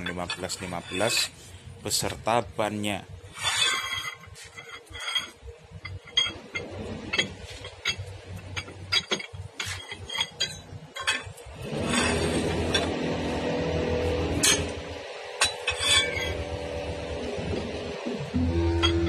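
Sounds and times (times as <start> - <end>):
steady loud noise: 11.5 - 19.0.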